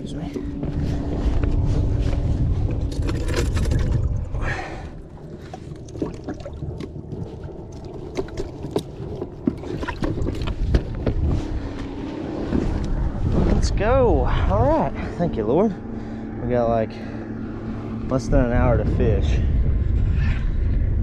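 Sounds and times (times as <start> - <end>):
water splashing: 2.8 - 10.8.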